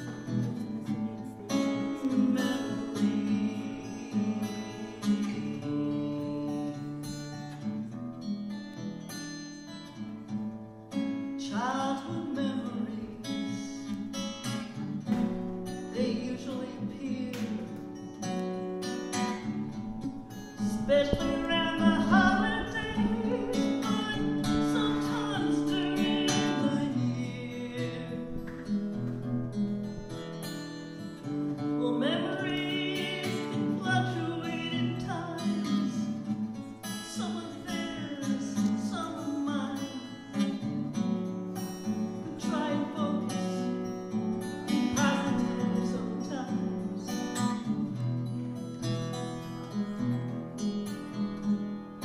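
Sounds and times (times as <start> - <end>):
woman singing: 0.0 - 6.9, 11.4 - 14.0, 15.9 - 17.8, 20.6 - 28.5, 31.6 - 36.2, 36.9 - 40.6, 42.2 - 43.8, 44.7 - 47.7
acoustic guitar: 0.0 - 52.0.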